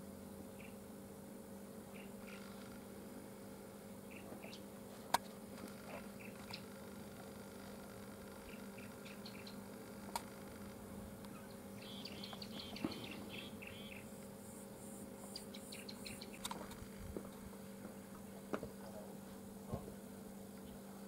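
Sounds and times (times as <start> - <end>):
steady low hum: 0.0 - 21.0
birds chirping: 0.5 - 0.8, 1.9 - 2.6, 4.0 - 4.7, 5.9 - 6.8, 8.4 - 10.1, 11.2 - 16.6.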